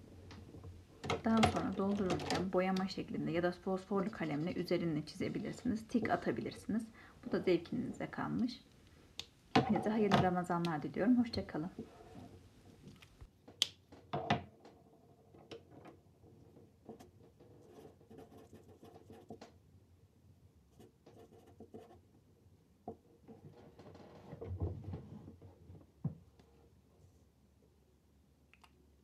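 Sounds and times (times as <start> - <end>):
faint steady hum: 0.0 - 13.3
markers scratching on paper: 17.0 - 19.4.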